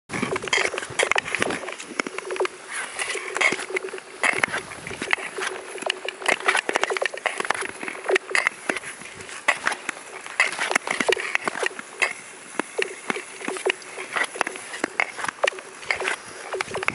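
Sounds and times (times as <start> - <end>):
ice skates gliding on ice: 0.1 - 16.9.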